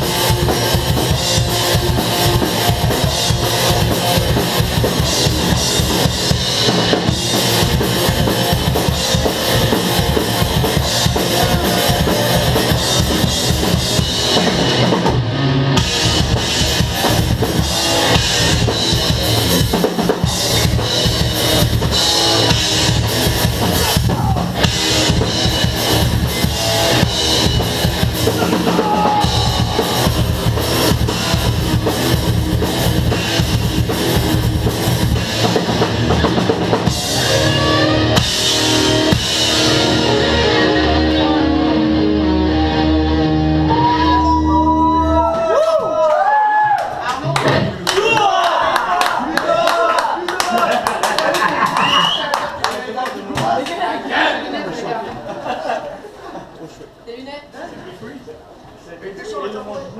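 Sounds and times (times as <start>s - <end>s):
rapid bass drum hits: 0.0s - 37.2s
live metal band playing: 0.0s - 45.3s.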